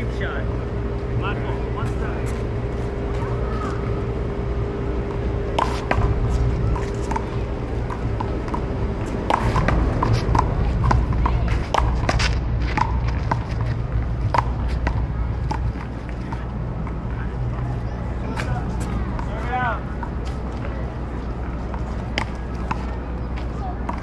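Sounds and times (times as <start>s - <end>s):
low rumble: 0.0s - 21.5s.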